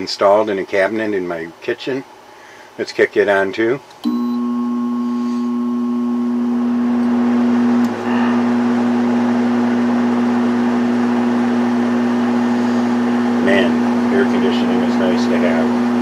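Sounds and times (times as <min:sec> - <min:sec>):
air conditioner humming: 0:00.0 - 0:16.0
fan rushing air: 0:05.1 - 0:16.0.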